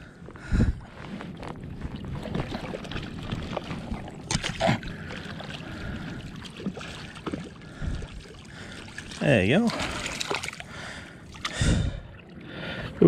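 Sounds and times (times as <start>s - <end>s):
river water lapping: 0.0s - 13.0s
sharp splashes: 2.2s - 11.7s.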